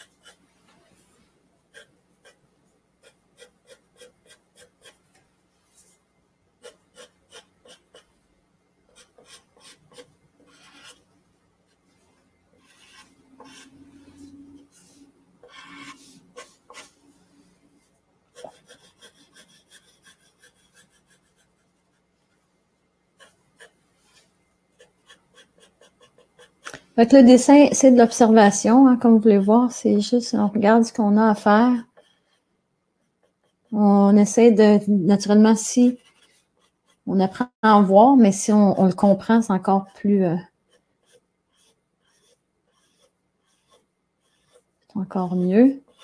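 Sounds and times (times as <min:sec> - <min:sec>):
pencil scratching on paper: 0:00.0 - 0:01.1, 0:01.7 - 0:02.4, 0:03.0 - 0:05.0, 0:06.6 - 0:08.2, 0:08.9 - 0:11.1, 0:12.6 - 0:17.1, 0:18.3 - 0:22.1, 0:23.2 - 0:26.8, 0:27.5 - 0:30.1, 0:31.2 - 0:34.5, 0:35.2 - 0:37.9, 0:40.4 - 0:46.0.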